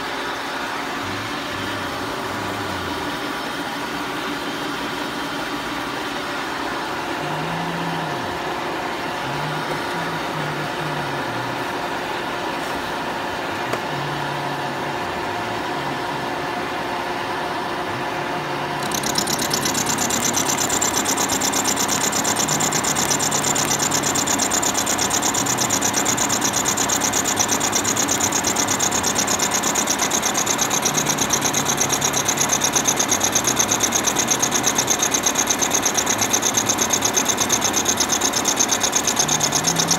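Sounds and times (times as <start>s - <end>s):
milling machine cutting metal: 18.8s - 39.9s.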